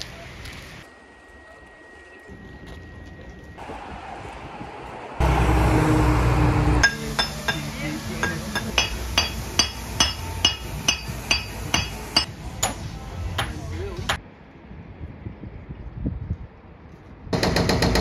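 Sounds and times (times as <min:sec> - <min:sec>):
hammer striking paving stones: 0:06.8 - 0:14.2.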